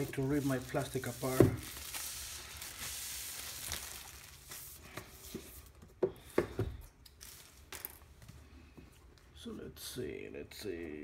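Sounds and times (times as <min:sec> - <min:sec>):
plastic wrap crinkling: 0:00.0 - 0:05.8, 0:07.0 - 0:08.1.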